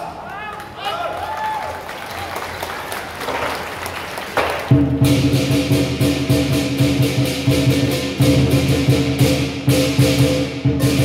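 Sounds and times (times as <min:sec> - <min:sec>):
large drum beat: 0:04.7 - 0:11.0.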